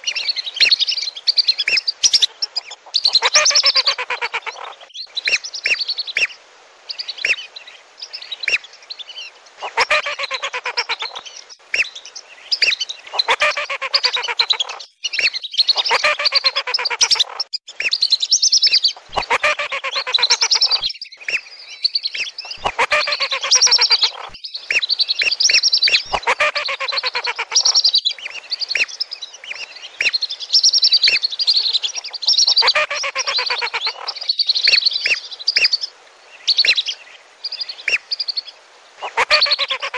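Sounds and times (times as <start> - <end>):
whistling ducks calling: 1.4 - 6.3, 9.6 - 11.2, 12.6 - 35.8, 39.0 - 39.9.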